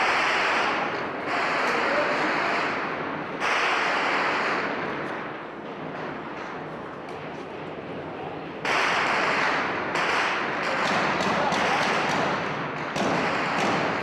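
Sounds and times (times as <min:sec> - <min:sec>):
gunshots with long echo: 0:00.0 - 0:05.0, 0:08.6 - 0:14.0.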